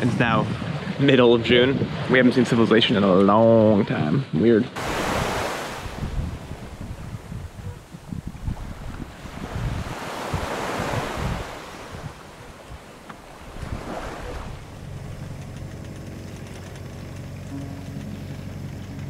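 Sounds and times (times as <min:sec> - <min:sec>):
water rushing along hull: 0:00.0 - 0:19.0
wind on microphone: 0:00.0 - 0:19.0
boat engine humming: 0:04.8 - 0:19.0.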